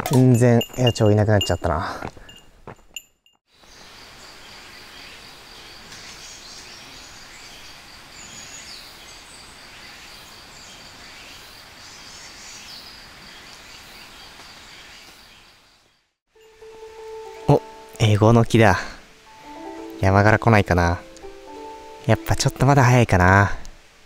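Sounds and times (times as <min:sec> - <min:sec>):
soft background hiss: 0:16.4 - 0:24.0.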